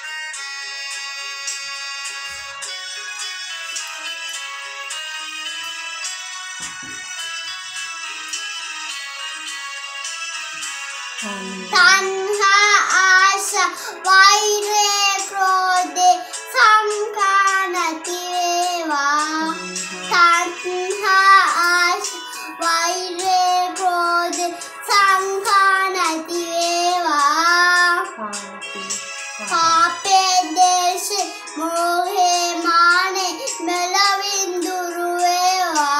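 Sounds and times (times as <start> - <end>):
backing music: 0.0 - 33.6
boy singing: 11.2 - 35.9.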